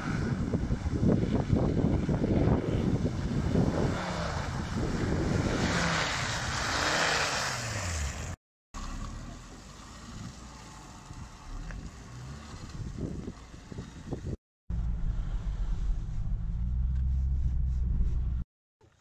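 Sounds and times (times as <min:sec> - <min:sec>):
tyres churning mud and water: 0:00.0 - 0:13.6
car engine under load: 0:00.2 - 0:18.5.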